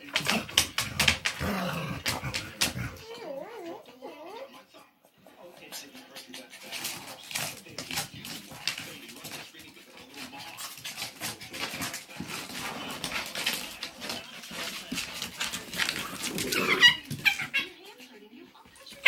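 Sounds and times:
dog claws clicking on wooden floor: 0:00.0 - 0:03.0, 0:05.6 - 0:17.6
dogs scuffling: 0:00.0 - 0:03.9, 0:05.2 - 0:19.0
dog yelping: 0:16.5 - 0:17.8.

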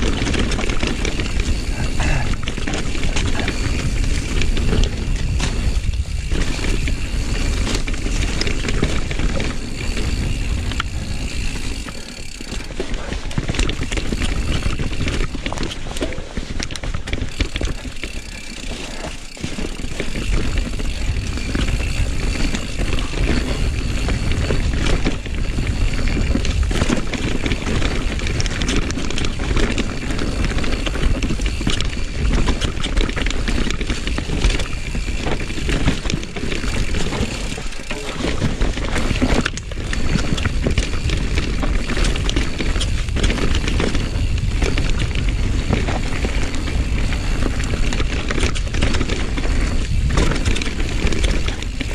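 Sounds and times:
bike rattling and clattering: 0:00.0 - 0:51.9
bike tyres rolling over dirt: 0:00.0 - 0:51.9
wind on microphone: 0:38.4 - 0:51.9.

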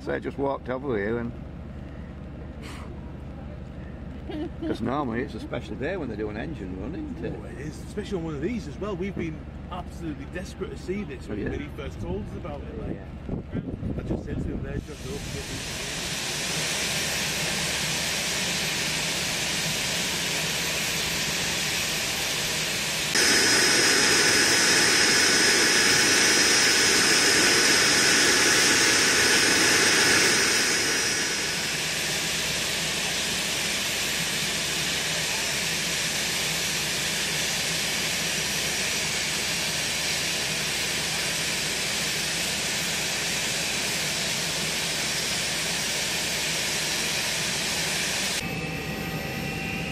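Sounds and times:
jet engine running with high whine: 0:13.9 - 0:49.9.

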